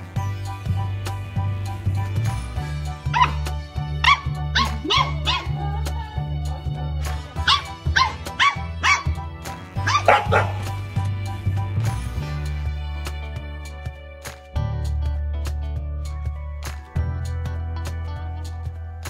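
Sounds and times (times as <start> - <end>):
background music with bass line: 0.0 - 19.0
puppy yapping: 3.1 - 3.4, 4.0 - 6.2, 7.4 - 9.2, 9.8 - 10.8.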